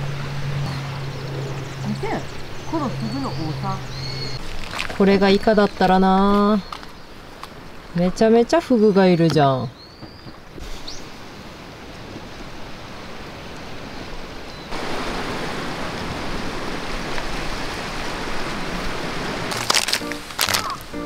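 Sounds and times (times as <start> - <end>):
sea surf rushing: 10.6 - 21.0.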